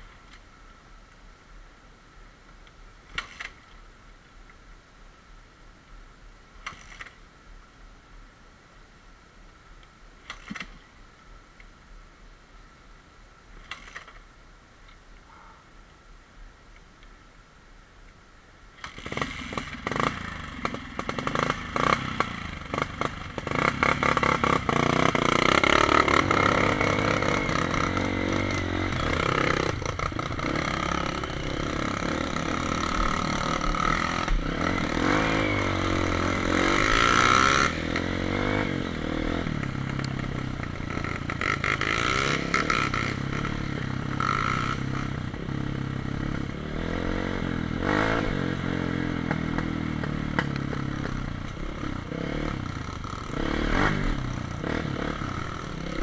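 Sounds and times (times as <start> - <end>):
dirt bike engine revving: 18.8 - 56.0.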